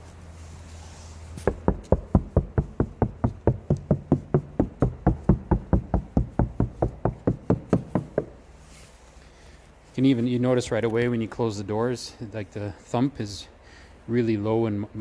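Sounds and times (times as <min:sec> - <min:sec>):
knuckles knocking on car door: 0:01.5 - 0:08.4.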